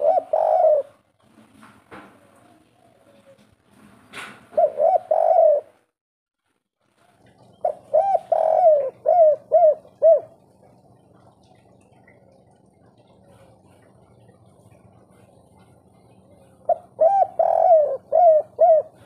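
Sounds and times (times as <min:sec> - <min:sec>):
dove cooing: 0:00.0 - 0:01.1, 0:02.2 - 0:03.5, 0:04.5 - 0:05.8, 0:07.0 - 0:19.0.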